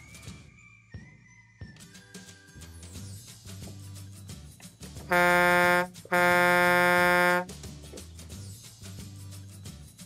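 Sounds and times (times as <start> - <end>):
quiet background music: 0.0 - 10.0
truck horn honk: 5.1 - 7.5.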